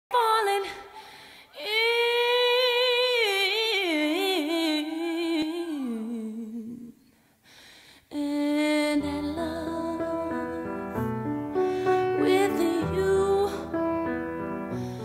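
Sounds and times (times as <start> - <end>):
woman singing with vibrato: 0.1 - 7.0, 8.1 - 11.1, 12.0 - 14.1
piano chords: 8.9 - 15.0.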